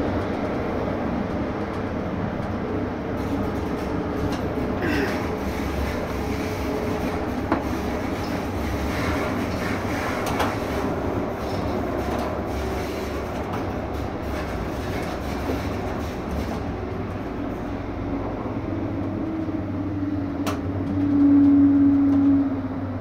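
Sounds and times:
tram wheels rumbling on rail: 0:00.0 - 0:23.0.

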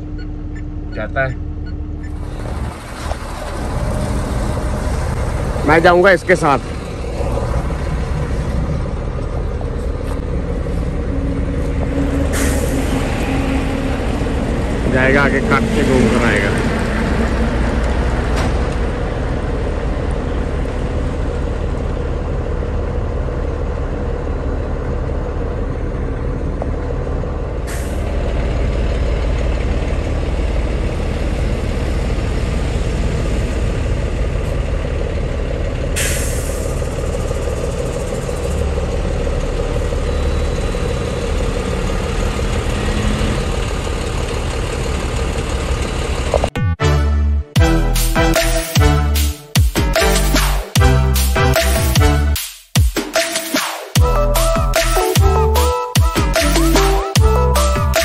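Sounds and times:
road noise: 0:00.0 - 0:52.4, 0:54.0 - 0:58.0
truck engine running: 0:00.0 - 0:52.4, 0:54.0 - 0:58.0
air brake hisses: 0:12.3 - 0:13.2, 0:27.7 - 0:28.1, 0:36.0 - 0:36.8.

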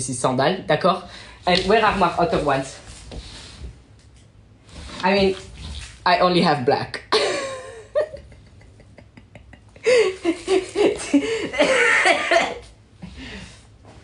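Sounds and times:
man laughing: 0:07.1 - 0:12.6.

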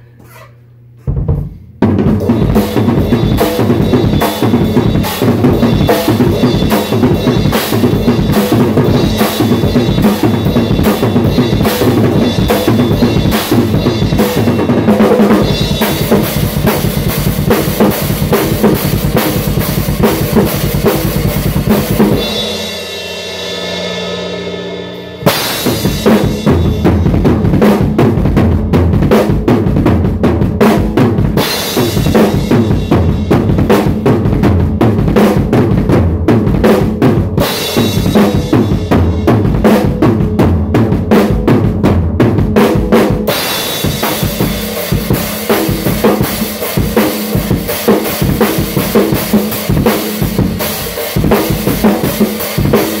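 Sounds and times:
drum kit played fast: 0:01.0 - 0:53.0.

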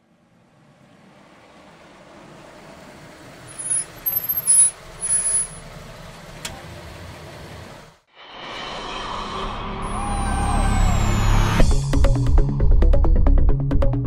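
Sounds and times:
engine bursts with high whistle: 0:03.4 - 0:05.8.

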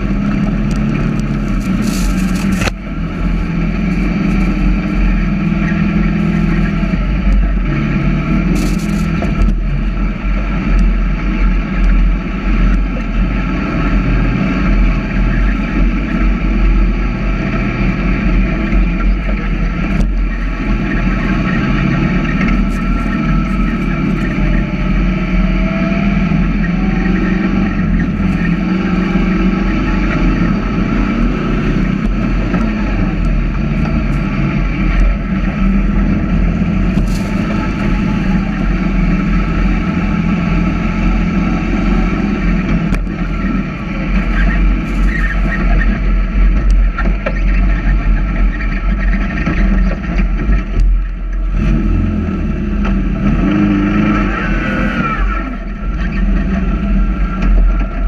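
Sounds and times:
engine running hard: 0:00.0 - 0:58.0.

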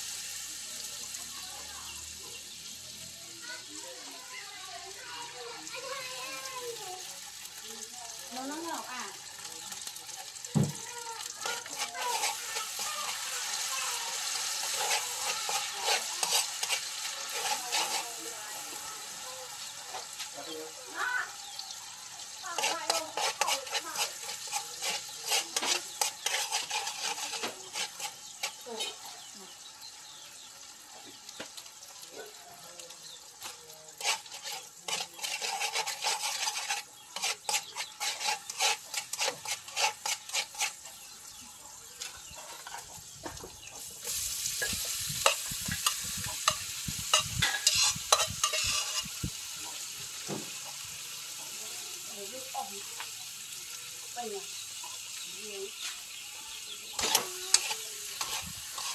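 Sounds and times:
food sizzling in a wok: 0:00.0 - 0:58.9
metal utensil scraping a wok: 0:04.9 - 0:31.6, 0:32.2 - 0:58.9.

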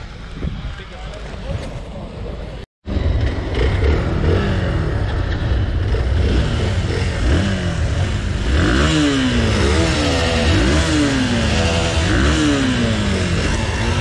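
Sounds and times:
motorcycle engines revving: 0:00.0 - 0:14.0.

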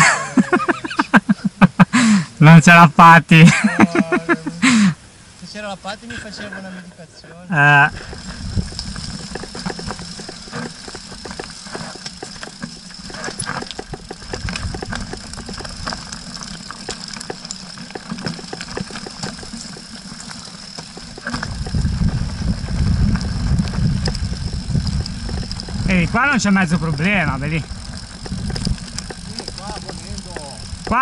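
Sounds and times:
bike rattling clicks and knocks: 0:07.8 - 0:31.0
wind buffeting microphone: 0:07.8 - 0:31.0.

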